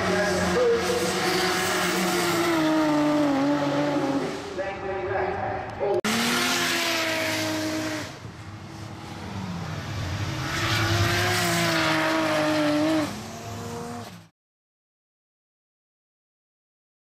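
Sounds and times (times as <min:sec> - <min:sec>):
car engines at high revs: 0:00.0 - 0:04.6, 0:05.6 - 0:14.3.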